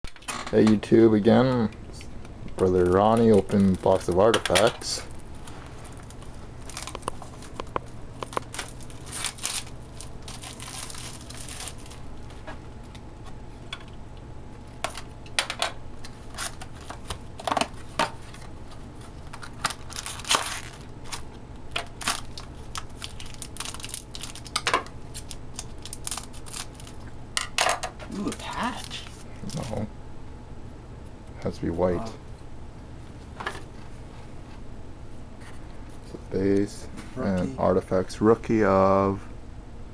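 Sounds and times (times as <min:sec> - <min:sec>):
low steady hum: 0:00.1 - 0:39.9
plastic wrap crinkling: 0:02.6 - 0:12.4, 0:16.2 - 0:27.1, 0:28.1 - 0:29.8.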